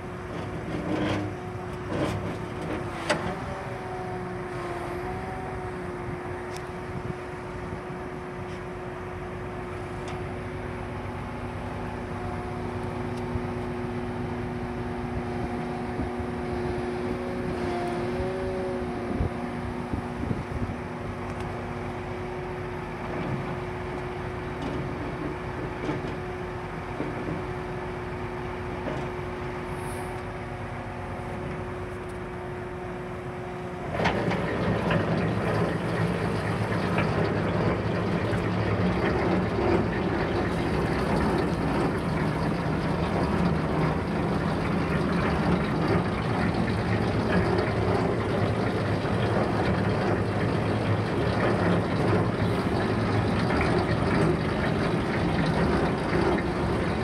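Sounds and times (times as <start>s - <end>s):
tractor engine running: 30.5s - 57.0s.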